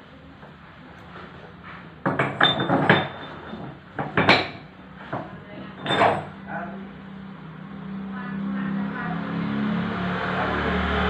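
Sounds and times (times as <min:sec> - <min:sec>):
metal parts clinking and knocking: 0:02.1 - 0:04.6, 0:05.8 - 0:06.4.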